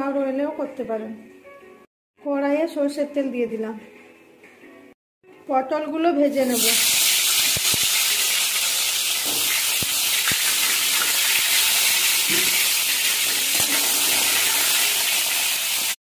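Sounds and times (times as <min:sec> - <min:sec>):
vegetables sizzling in oil: 0:06.4 - 0:16.0.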